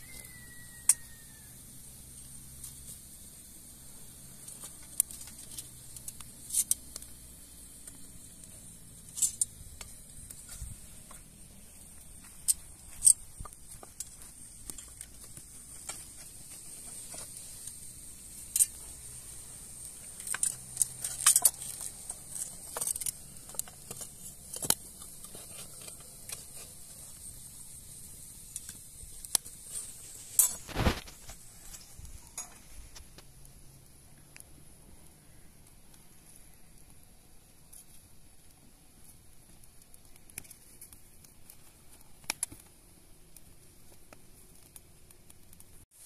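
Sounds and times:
steady high hiss: 0:00.0 - 0:46.0.

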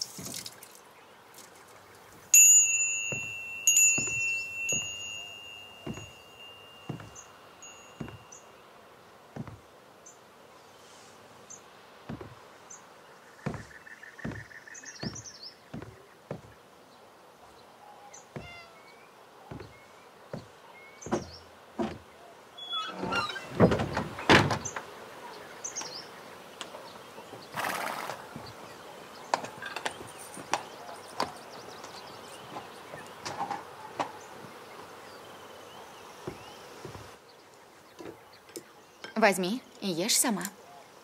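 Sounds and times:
birds chirping faintly: 0:00.0 - 0:41.0
wooden door knocks and clatter: 0:21.1 - 0:22.1, 0:23.0 - 0:24.8.

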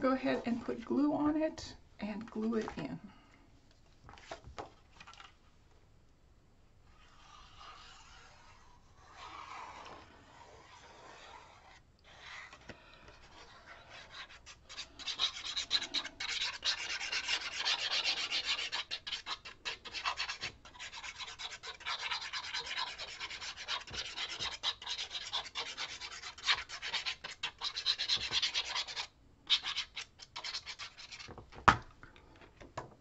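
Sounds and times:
paper being rubbed by hand: 0:06.9 - 0:12.6, 0:13.2 - 0:31.3.

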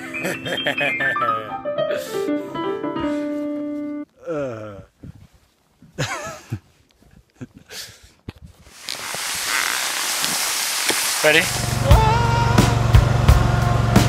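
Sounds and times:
man's falling vocal slide: 0:11.2 - 0:13.0
short wavering vocal sound: 0:11.5 - 0:12.8.

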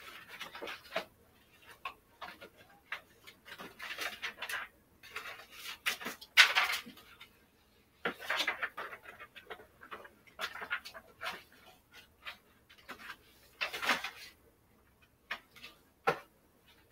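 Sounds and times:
items rustling and clattering on shelf: 0:00.0 - 0:16.9.

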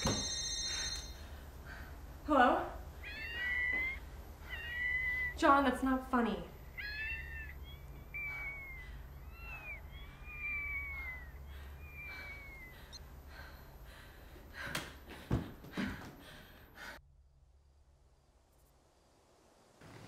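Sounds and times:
cat meowing: 0:03.0 - 0:05.4, 0:06.6 - 0:11.3.

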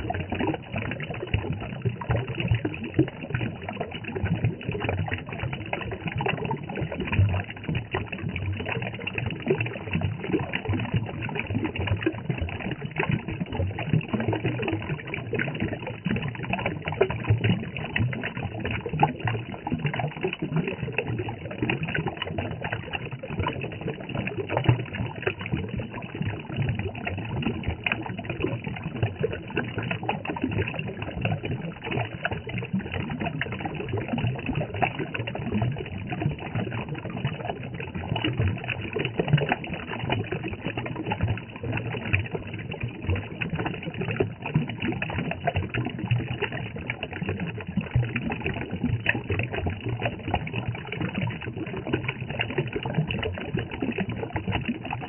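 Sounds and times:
water splashing over rocks: 0:00.0 - 0:55.0.

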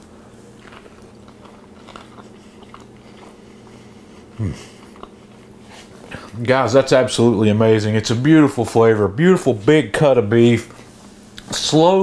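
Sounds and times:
man chewing: 0:00.0 - 0:06.4
man humming: 0:04.3 - 0:04.9.

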